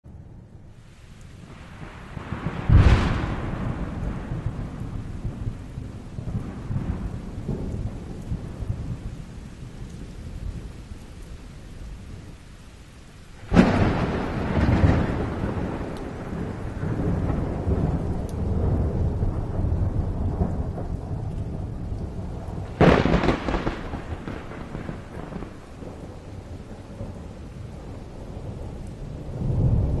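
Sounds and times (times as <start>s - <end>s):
rain: 0.0s - 30.0s
thunderclaps with low rumble: 0.1s - 30.0s.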